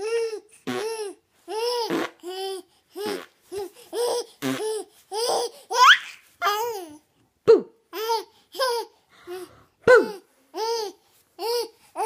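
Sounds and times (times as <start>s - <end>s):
baby laughing: 0.8s - 7.0s
baby squealing: 4.0s - 6.7s.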